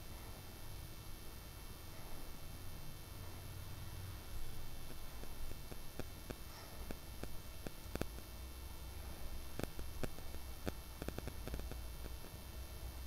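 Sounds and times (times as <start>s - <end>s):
oil crackling and popping: 4.9s - 8.3s, 9.5s - 12.4s.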